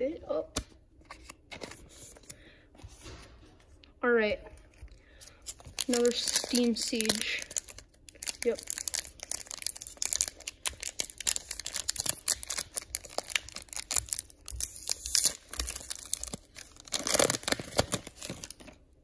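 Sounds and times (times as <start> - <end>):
foil wrapper tearing and crinkling: 5.6 - 18.8.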